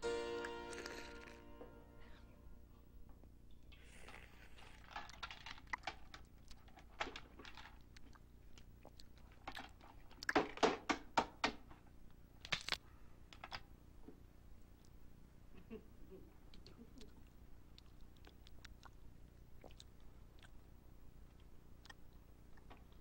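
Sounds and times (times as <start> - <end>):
shellfish shell cracking: 3.7 - 10.8, 12.4 - 12.8.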